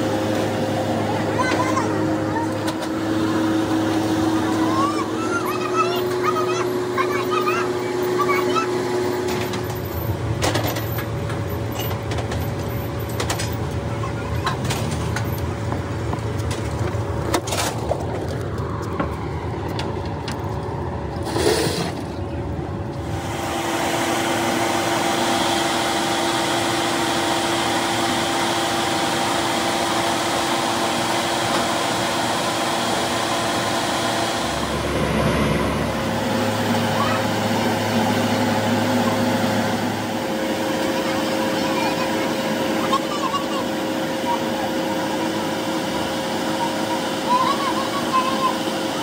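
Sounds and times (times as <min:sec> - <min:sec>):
knocks and clanks: 0:09.2 - 0:20.4
low hum: 0:14.4 - 0:41.0
machine whirring: 0:22.9 - 0:49.0.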